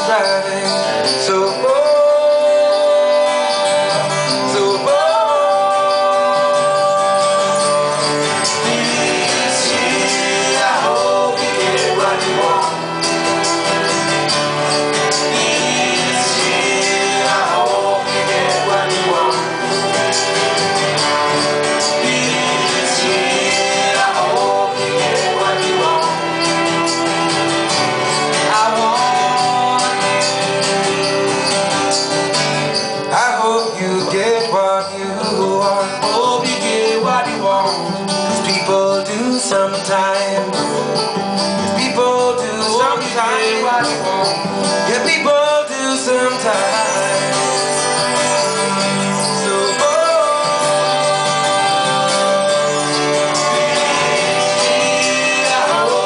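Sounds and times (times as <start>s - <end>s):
person singing: 0.0s - 31.6s, 32.9s - 56.0s
acoustic guitars: 0.0s - 56.0s
violin: 5.2s - 33.0s.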